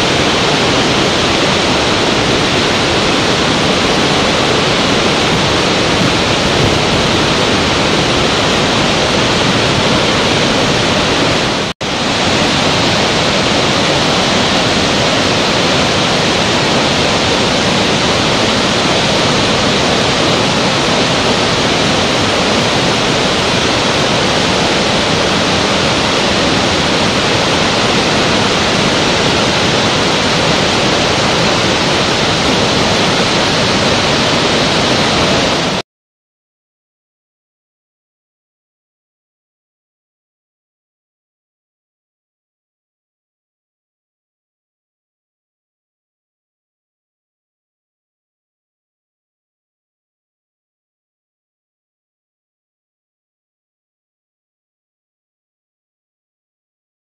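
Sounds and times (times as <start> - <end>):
waterfall rushing: 0.0 - 35.8.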